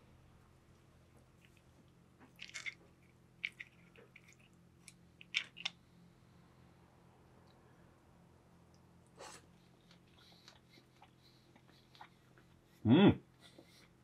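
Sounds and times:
chewing mouth sounds: 9.6 - 12.6.

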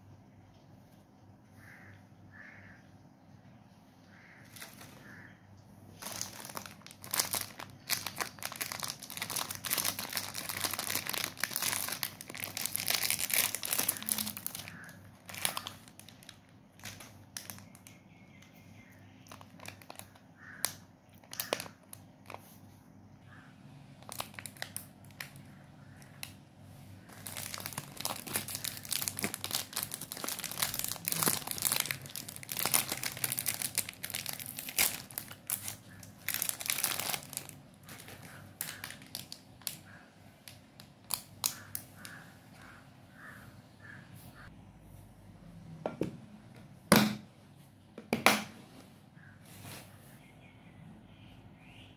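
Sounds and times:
plastic packets crinkling: 4.5 - 5.0, 6.0 - 18.0, 19.2 - 22.4, 24.0 - 26.4, 27.0 - 42.2.

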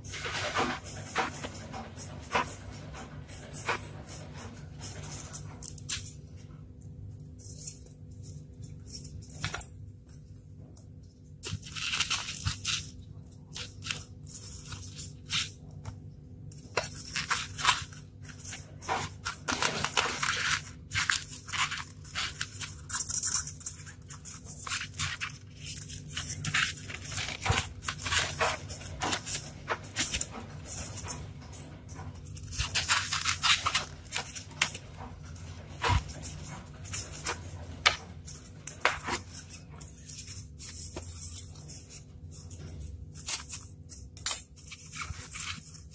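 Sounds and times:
hands scraping polystyrene foam: 0.0 - 5.6, 16.7 - 31.5, 32.4 - 34.9.

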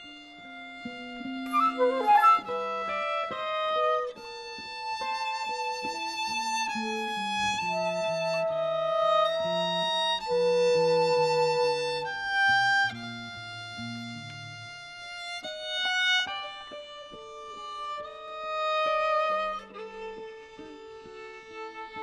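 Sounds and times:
violin slow melody: 0.0 - 22.0
accompaniment notes: 0.5 - 12.4.

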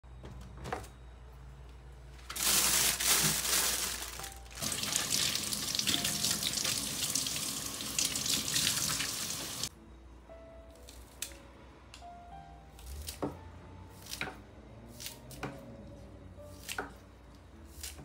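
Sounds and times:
faucet running into sink: 4.6 - 9.7.

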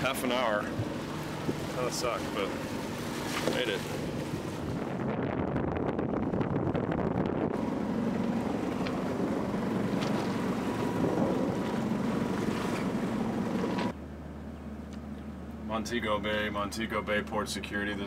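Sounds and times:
wind buffeting microphone: 0.0 - 13.9
water rushing along hull: 0.0 - 18.0.

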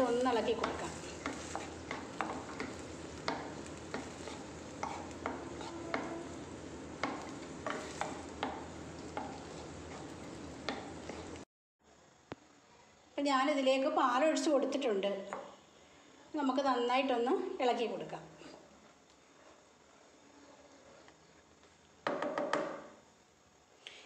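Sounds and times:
spatula scraping and tapping pan: 0.0 - 11.4
steady sizzle: 0.0 - 23.7.

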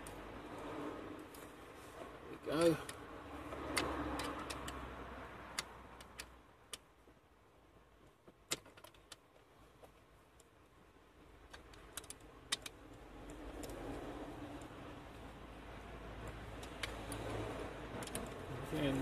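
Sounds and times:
metallic clicks of bolts and key: 3.7 - 4.8.

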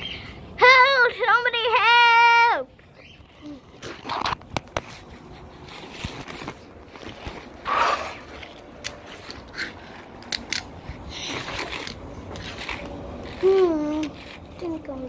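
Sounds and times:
rustling scrape: 3.8 - 10.2, 10.8 - 15.0.

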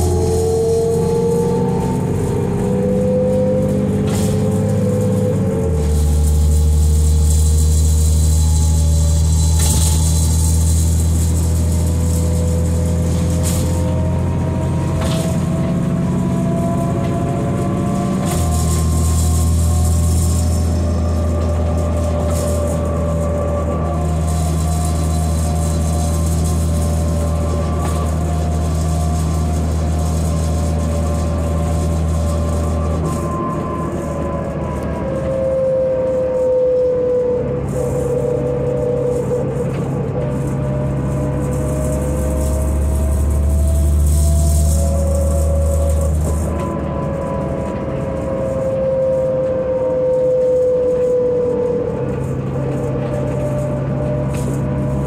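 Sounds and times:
bus diesel engine droning: 0.0 - 55.0
drivetrain whine rising in pitch: 0.0 - 55.0
road noise: 0.0 - 55.0.

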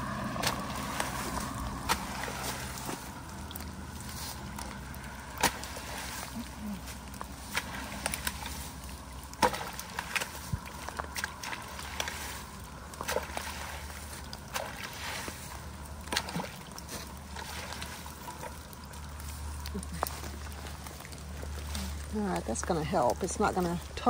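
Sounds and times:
rake splashing through muddy water: 0.0 - 24.0.

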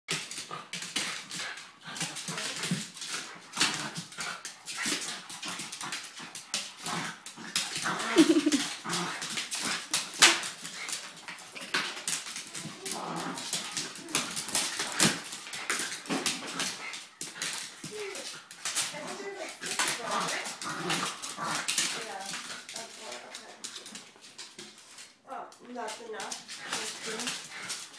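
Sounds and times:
dog vocal noises: 0.1 - 24.2, 26.2 - 27.9
paws scrabbling on wooden floor: 0.1 - 27.9
dog whining: 8.1 - 8.7.

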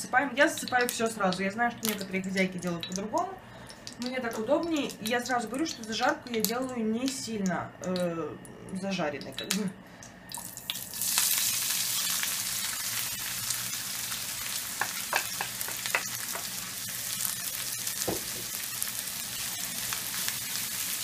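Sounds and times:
vegetables sizzling in oil: 10.3 - 21.0
knock: 18.0 - 18.5.

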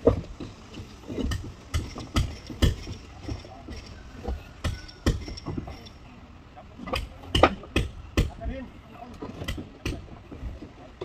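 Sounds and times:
hand tools knocking: 0.0 - 6.0.

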